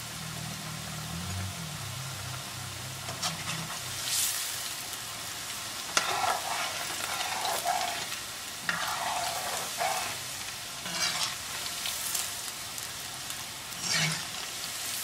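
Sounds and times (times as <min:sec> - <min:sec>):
dough sizzling in hot oil: 0:00.0 - 0:15.0
metal spoon scraping: 0:06.0 - 0:11.4, 0:13.8 - 0:14.5.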